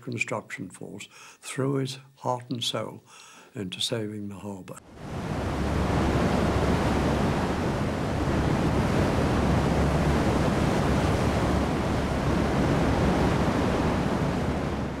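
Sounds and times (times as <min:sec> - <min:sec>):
heavy waves breaking: 0:04.8 - 0:15.0
wind: 0:04.8 - 0:15.0.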